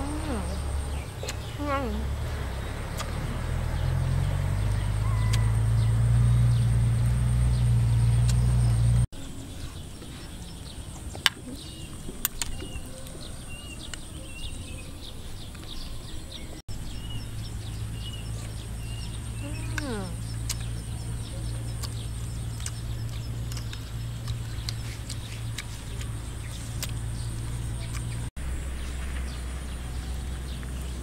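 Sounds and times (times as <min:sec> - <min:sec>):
birds chirping: 0:00.0 - 0:31.0
sharp clicks: 0:19.8 - 0:20.7.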